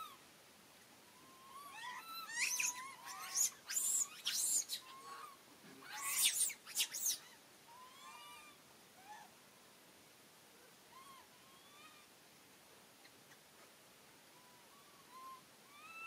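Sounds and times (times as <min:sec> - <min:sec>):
monkeys squealing and screeching: 0:01.3 - 0:08.5.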